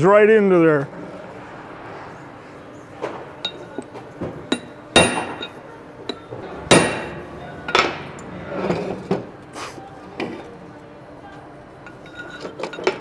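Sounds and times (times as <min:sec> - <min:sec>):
hammer striking a metal chisel: 0:04.5 - 0:08.0.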